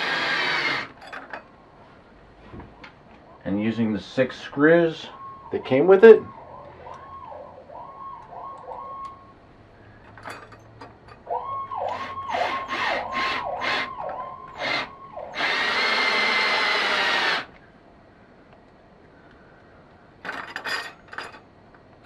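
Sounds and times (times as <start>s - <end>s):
cordless drill driving screws: 0.0s - 1.0s, 11.9s - 13.9s, 14.6s - 17.5s
siren wailing: 5.0s - 9.4s, 11.2s - 16.6s.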